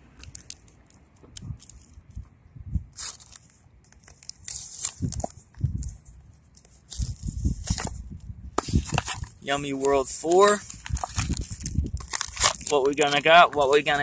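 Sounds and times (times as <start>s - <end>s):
foil wrapper crinkling: 3.0s - 6.0s, 8.7s - 14.0s.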